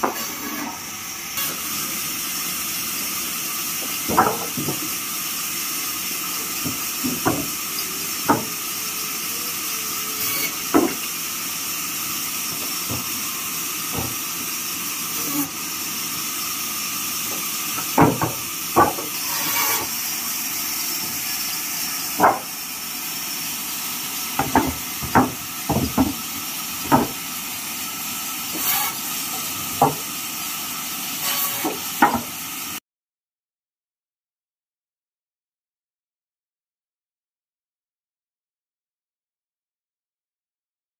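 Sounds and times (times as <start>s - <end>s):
bandsaw running: 0.0s - 32.8s
wooden planks knocking: 3.8s - 4.9s, 6.6s - 7.6s, 8.3s - 8.5s, 10.7s - 11.0s, 12.5s - 13.1s, 13.9s - 14.2s, 17.3s - 19.1s, 22.2s - 22.5s, 24.4s - 26.2s, 26.8s - 27.2s, 29.7s - 30.1s, 31.6s - 32.3s.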